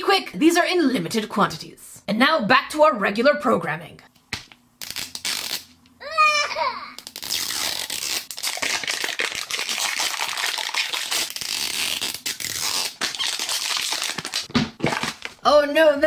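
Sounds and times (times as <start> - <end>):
plastic packaging crinkling: 7.0 - 15.4.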